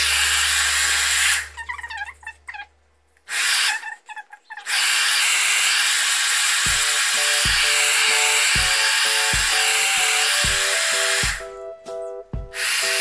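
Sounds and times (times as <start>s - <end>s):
hair dryer blowing: 4.7s - 11.4s, 12.5s - 13.0s.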